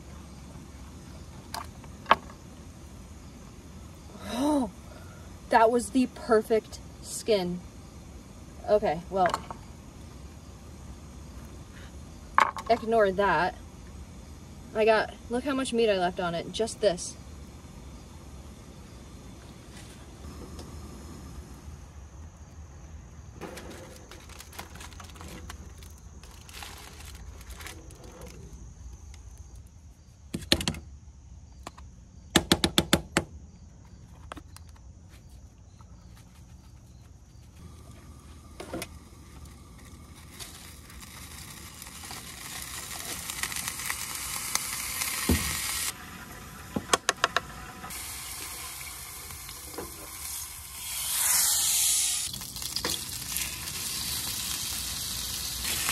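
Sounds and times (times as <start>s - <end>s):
butter sizzling in a pan: 38.1s - 55.9s.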